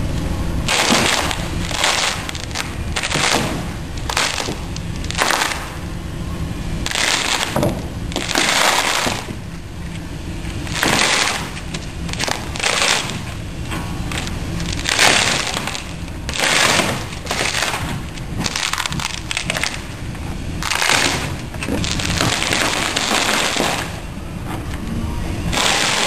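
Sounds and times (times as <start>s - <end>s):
steady low rumble: 0.0s - 26.0s
fabric tearing off with crackling rip: 25.5s - 26.0s.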